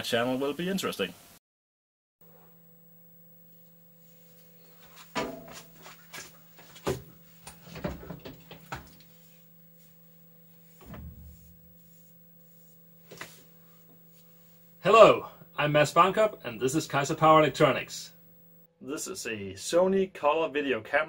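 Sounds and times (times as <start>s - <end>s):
steady low hum: 2.2s - 18.7s.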